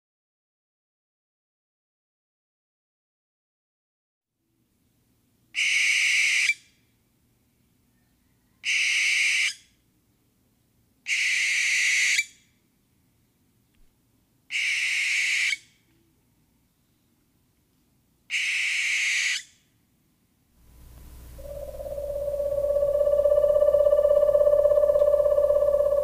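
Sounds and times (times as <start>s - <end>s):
owl screeching: 5.6s - 6.6s, 8.6s - 9.6s, 11.1s - 12.3s, 14.5s - 15.6s, 18.3s - 19.5s, 21.2s - 26.0s.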